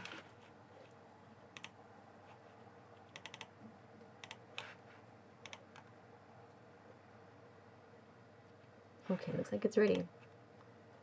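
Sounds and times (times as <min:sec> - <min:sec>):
low steady hum: 0:00.0 - 0:11.0
computer mouse clicks: 0:01.5 - 0:01.8, 0:03.0 - 0:03.5, 0:04.2 - 0:04.7, 0:05.4 - 0:06.6.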